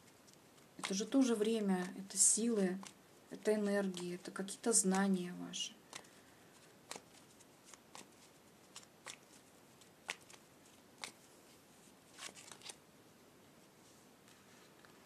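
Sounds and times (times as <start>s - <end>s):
cards being shuffled: 0.0s - 5.2s, 5.9s - 11.2s, 12.1s - 12.8s.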